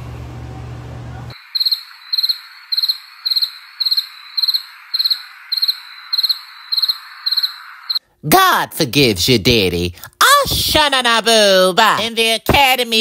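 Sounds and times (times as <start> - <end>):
room tone hum: 0.0 - 10.0
crickets chirping: 1.3 - 8.0.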